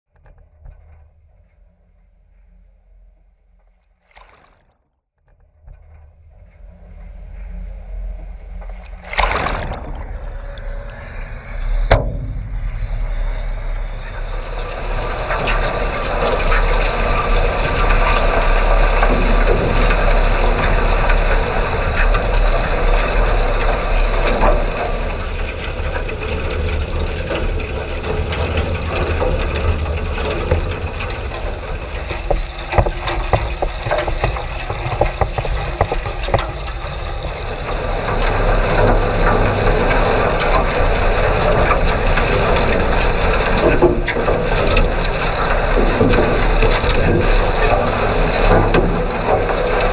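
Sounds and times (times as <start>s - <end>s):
crackling and scraping: 0.1s - 49.9s
low rumble: 5.3s - 49.9s
underwater rushing water flow: 7.2s - 49.9s
sharp clicks and knocks: 14.1s - 49.9s.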